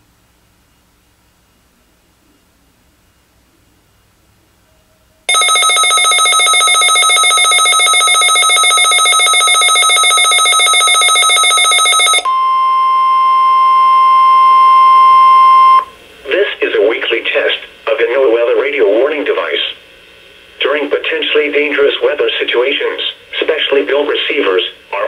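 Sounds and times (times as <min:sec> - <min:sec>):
rapid electronic beeping: 0:05.3 - 0:12.3
steady alarm tone: 0:05.3 - 0:15.8.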